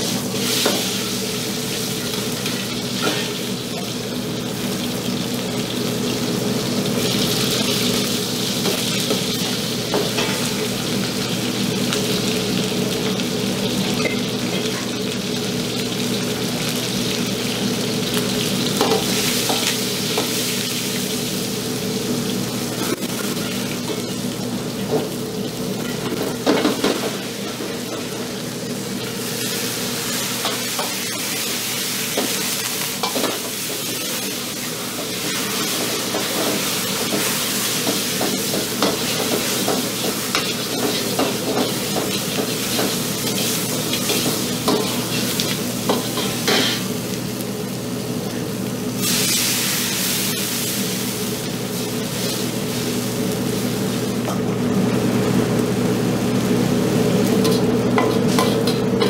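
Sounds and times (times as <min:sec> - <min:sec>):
food sizzling in a wok: 0:00.0 - 0:59.0.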